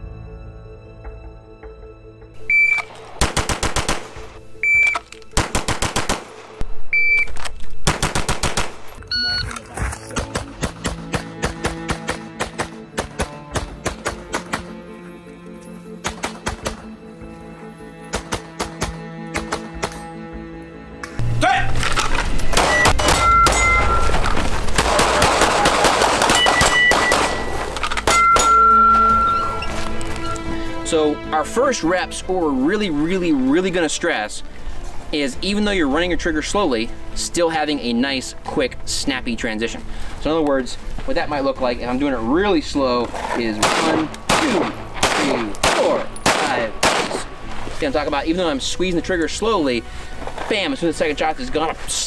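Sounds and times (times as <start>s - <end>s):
background music with low beat: 0.0s - 34.2s
pistol gunshots: 3.0s - 4.4s, 5.4s - 6.6s, 7.8s - 9.0s, 10.2s - 14.7s, 16.0s - 16.8s, 22.5s - 23.9s, 24.7s - 28.6s, 43.6s - 47.3s
short high electronic beep: 9.1s - 9.5s, 22.7s - 24.2s.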